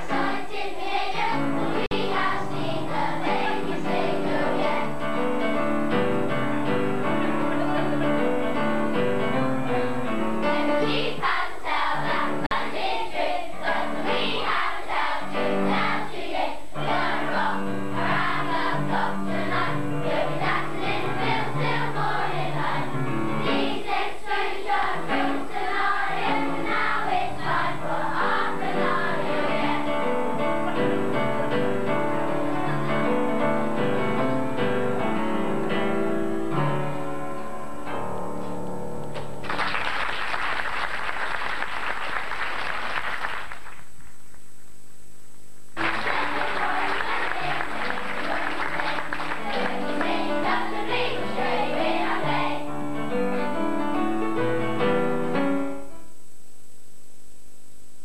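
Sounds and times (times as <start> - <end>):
children's choir singing: 0.0 - 8.7, 10.4 - 33.8, 45.8 - 53.8
musical accompaniment: 0.0 - 40.0, 45.8 - 56.2
audience applause: 39.4 - 43.9, 45.8 - 50.7.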